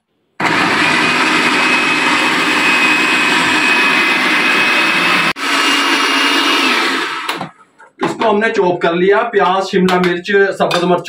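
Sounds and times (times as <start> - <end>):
electric food chopper whining: 0.4 - 7.5.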